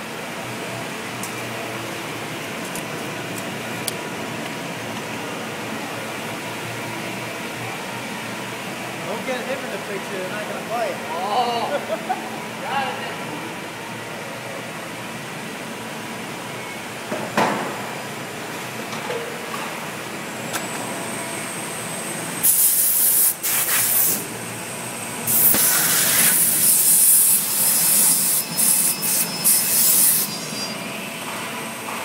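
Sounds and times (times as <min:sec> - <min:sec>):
loud high hissing bursts: 0:22.4 - 0:24.3, 0:25.2 - 0:30.9.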